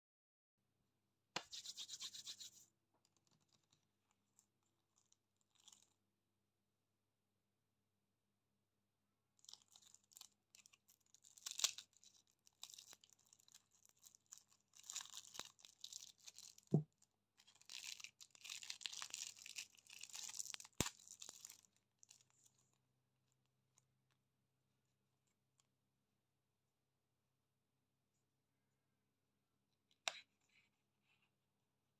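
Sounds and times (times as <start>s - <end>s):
plastic wrapping crinkling: 9.4s - 22.7s.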